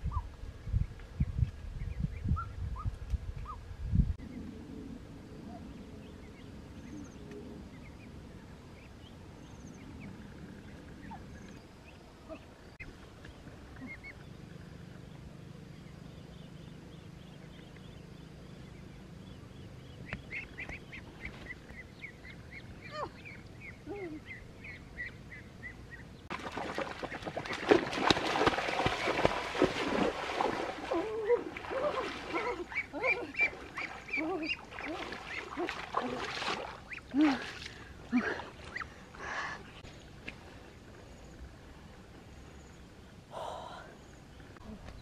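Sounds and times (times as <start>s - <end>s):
splashing in shallow water: 26.3s - 39.3s
ducks calling: 31.8s - 35.8s.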